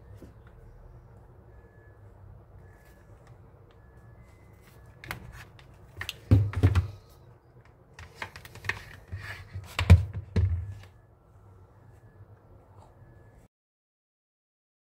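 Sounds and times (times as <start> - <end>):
thumps on a table: 6.3 - 7.0.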